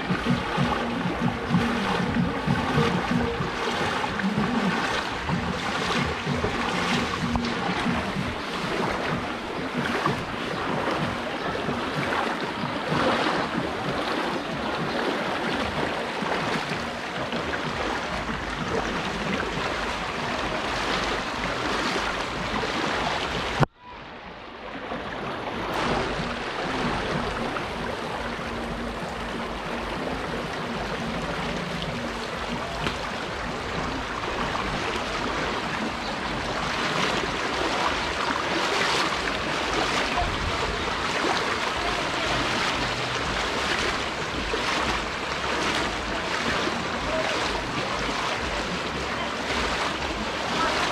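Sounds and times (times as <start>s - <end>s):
floodwater rushing: 0.0s - 50.9s.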